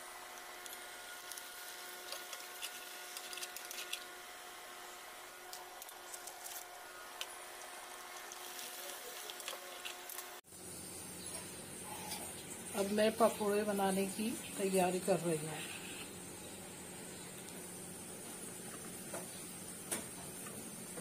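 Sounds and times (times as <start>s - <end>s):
faint steady hum: 0.0s - 21.0s
hot oil sizzling and crackling: 0.0s - 21.0s.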